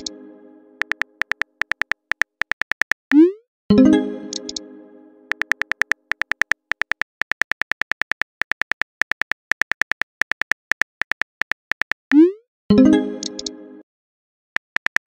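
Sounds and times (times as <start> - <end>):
phone keyboard key clicks: 0.8 - 3.1, 5.3 - 12.0, 14.6 - 15.0.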